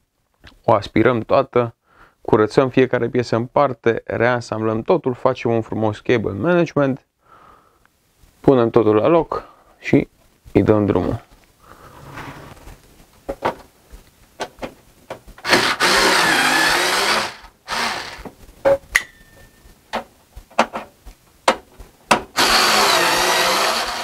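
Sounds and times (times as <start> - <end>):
electric screwdriver motor: 15.4 - 18.3, 22.4 - 24.0.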